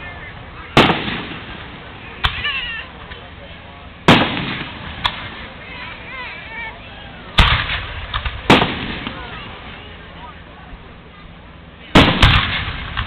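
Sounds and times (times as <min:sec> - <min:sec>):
firework cracks: 0:00.6 - 0:03.2, 0:04.0 - 0:05.6, 0:07.4 - 0:09.5, 0:11.9 - 0:13.0
firework booms: 0:00.7 - 0:02.6, 0:04.0 - 0:05.5, 0:07.4 - 0:09.6, 0:12.0 - 0:13.0.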